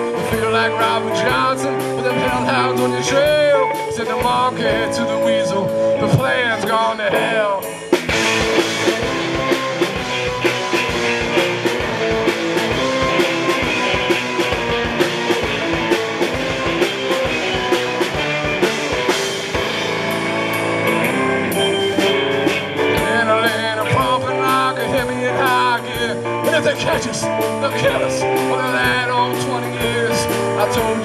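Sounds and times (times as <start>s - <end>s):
live rock band playing: 0.0s - 31.0s
drum hits: 7.9s - 31.0s.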